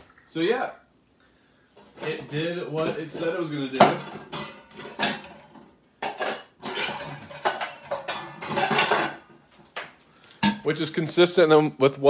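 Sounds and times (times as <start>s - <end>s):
dishes and pots clattering: 1.7s - 9.8s, 10.4s - 10.7s.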